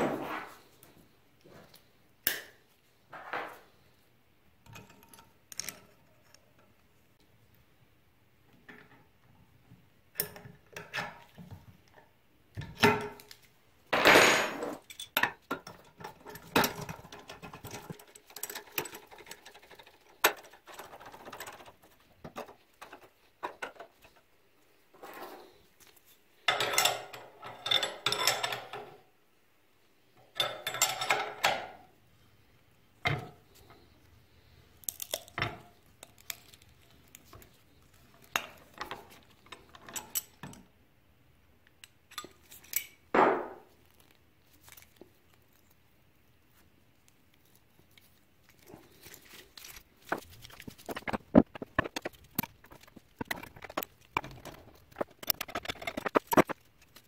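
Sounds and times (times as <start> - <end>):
metal tools clinking and clattering: 14.0 - 20.8, 26.5 - 28.9, 30.4 - 31.7, 38.3 - 40.6.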